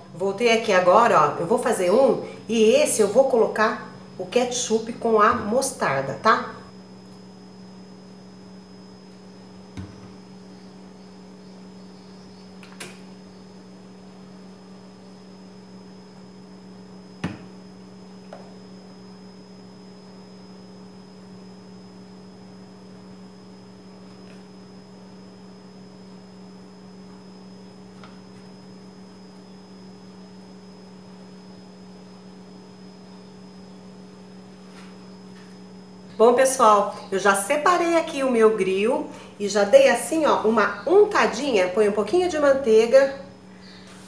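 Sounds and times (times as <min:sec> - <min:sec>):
electrical hum: 0:00.0 - 0:44.0.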